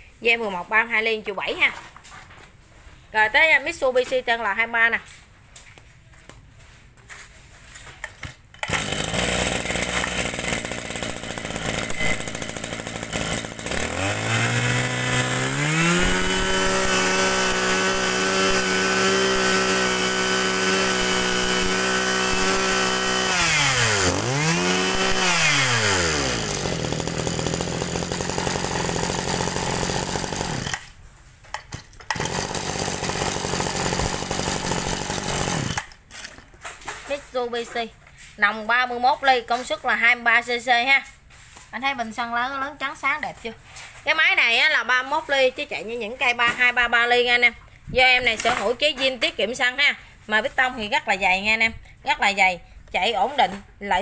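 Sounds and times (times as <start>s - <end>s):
brush-cutter engine revving: 8.6s - 30.9s, 32.1s - 36.0s.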